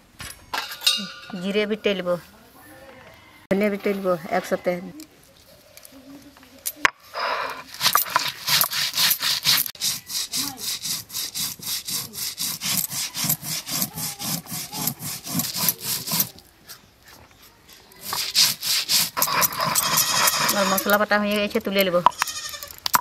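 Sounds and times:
stone roller grinding on slab: 7.7 - 16.5, 18.0 - 23.0.

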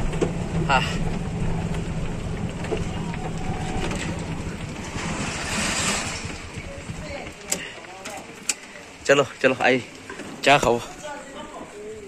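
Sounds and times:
vehicle rumble and hiss: 0.0 - 9.1.

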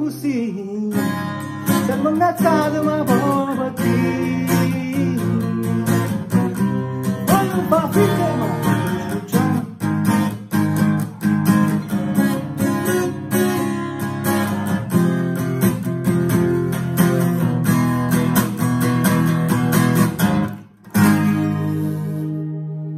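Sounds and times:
acoustic guitar strumming chords: 0.0 - 22.9.

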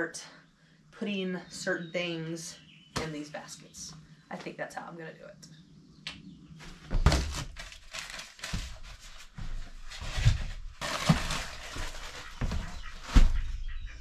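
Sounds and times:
frozen packages knocking: 6.9 - 9.4, 10.1 - 13.4
plastic wrap crinkling: 7.0 - 13.2.

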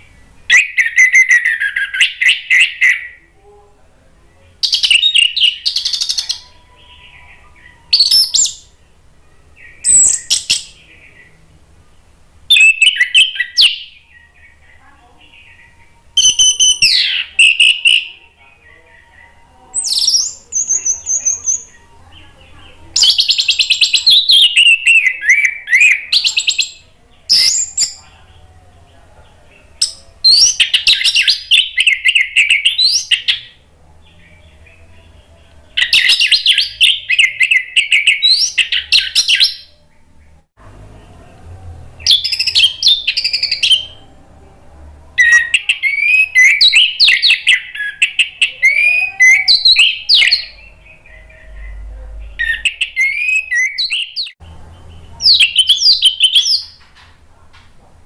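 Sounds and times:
thrush singing warbling phrases: 45.2 - 54.2.

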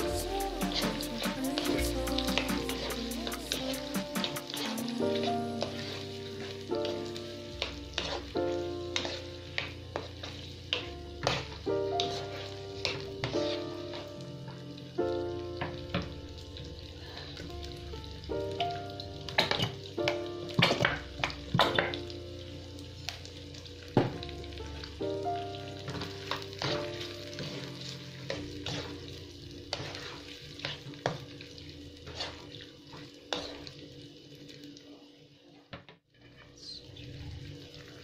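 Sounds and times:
meatballs sizzling in frying pan: 0.0 - 35.7
wooden spatula scraping a pan: 0.6 - 6.5, 7.6 - 14.1, 25.9 - 31.2, 32.0 - 33.8.

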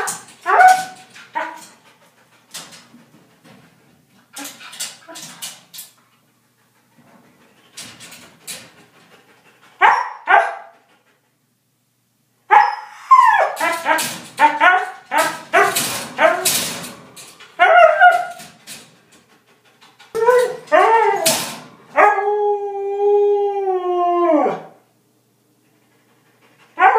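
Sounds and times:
dog barking and yipping: 0.0 - 1.7, 9.8 - 10.8, 12.5 - 16.6, 17.6 - 18.4, 20.1 - 22.3.

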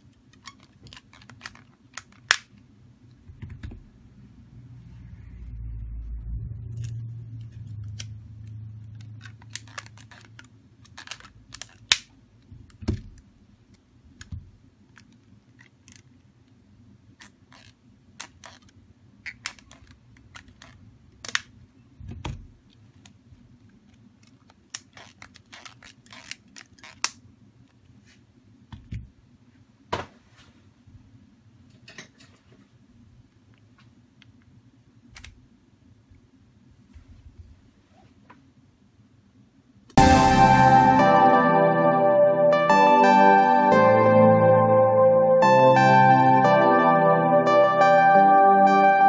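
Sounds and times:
faint low hum: 2.6 - 17.2.

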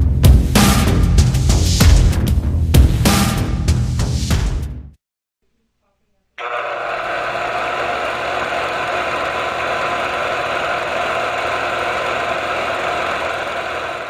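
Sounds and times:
film projector whirring clatter: 6.4 - 14.0.

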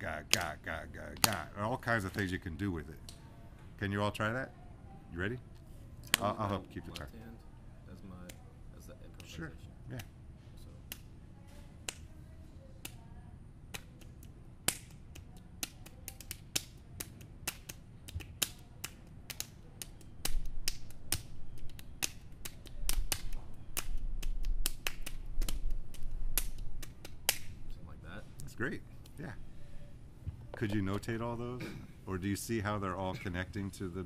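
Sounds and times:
sharp rhythmic clicks and taps: 0.1 - 1.5, 10.9 - 11.1, 11.8 - 12.1, 12.8 - 13.0, 13.7 - 27.5.

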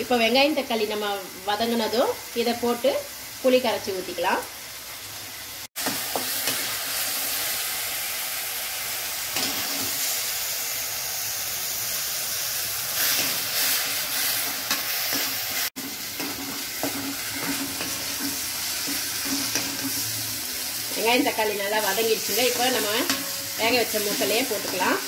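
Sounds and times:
vegetables sizzling in hot oil: 0.0 - 25.0
metal spatula scraping pan: 14.7 - 20.2, 20.9 - 25.0.

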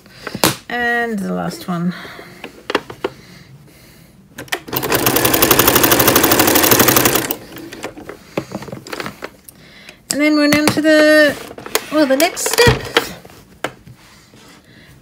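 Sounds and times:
sewing machine stitching: 4.6 - 7.8.

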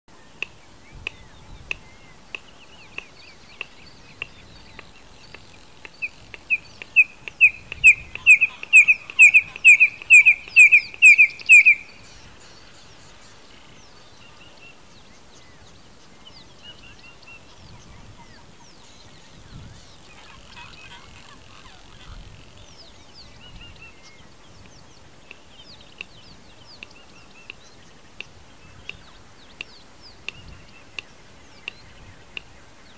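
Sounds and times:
bird piping whistles: 6.0 - 12.1.

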